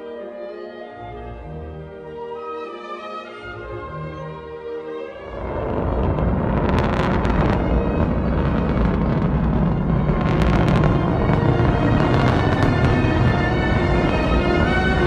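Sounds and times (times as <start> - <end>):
orchestral music: 0.0 - 15.0
rocket lifting off: 5.2 - 15.0
sharp crackles: 5.2 - 15.0.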